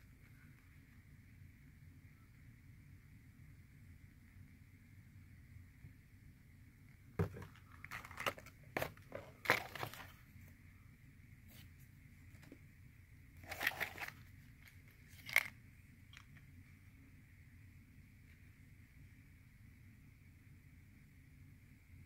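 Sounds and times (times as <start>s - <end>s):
plastic blister packs crackling: 13.4s - 14.2s.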